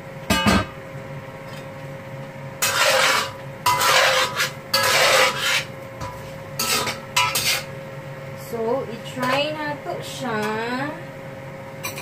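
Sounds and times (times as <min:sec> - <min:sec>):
faint steady hum: 0:00.0 - 0:12.0
metal spatula scraping wok: 0:02.6 - 0:07.7.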